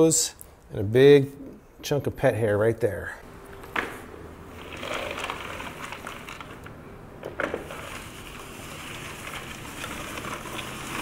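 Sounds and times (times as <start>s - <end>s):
spinning broom whirring on tile: 4.5s - 6.7s, 7.3s - 11.0s.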